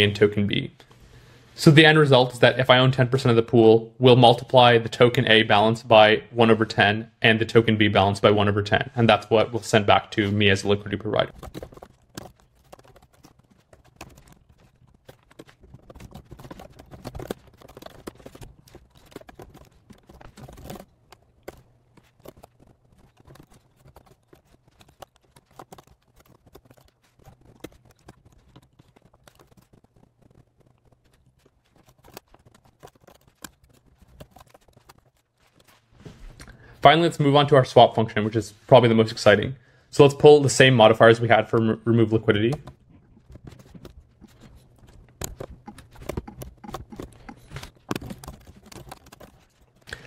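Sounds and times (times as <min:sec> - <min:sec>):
keyboard typing: 0:09.7 - 0:35.8, 0:40.9 - 0:50.0.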